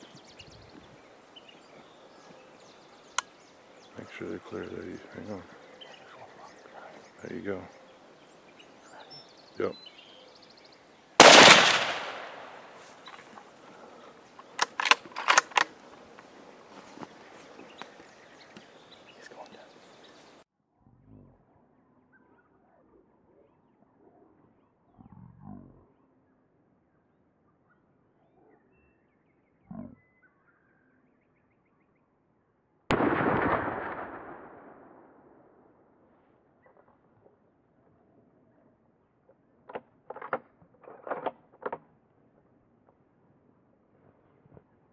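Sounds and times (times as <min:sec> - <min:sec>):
loud gunshot: 0:11.2 - 0:12.7, 0:32.9 - 0:35.2
sharp clicks and knocks: 0:39.6 - 0:41.9.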